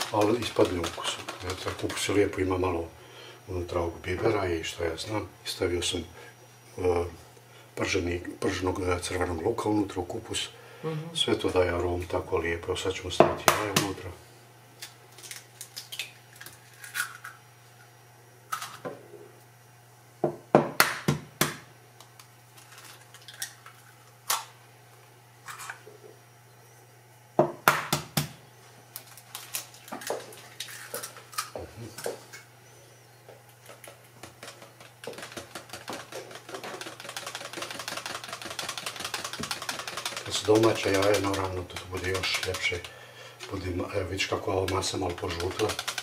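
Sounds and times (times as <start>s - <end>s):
eggs cracking: 0.0s - 2.6s, 22.0s - 24.5s, 33.4s - 46.0s
whisk beating in plastic jug: 0.0s - 2.7s, 33.7s - 46.0s.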